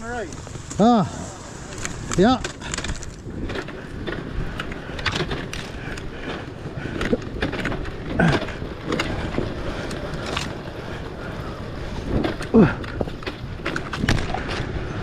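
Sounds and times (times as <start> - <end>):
bike knocking and rattling: 0.0 - 15.0.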